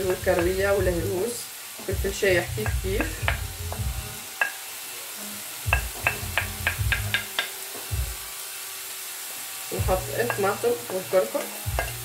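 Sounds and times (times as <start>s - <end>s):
onions sizzling in oil: 0.0s - 12.0s
wooden spoon tapping: 1.9s - 4.6s, 5.7s - 7.5s, 11.7s - 12.0s.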